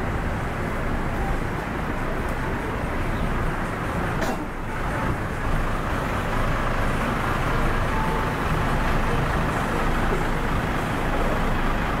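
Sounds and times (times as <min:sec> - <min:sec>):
bus diesel engine rumble: 0:00.0 - 0:12.0
other buses noise: 0:00.0 - 0:12.0.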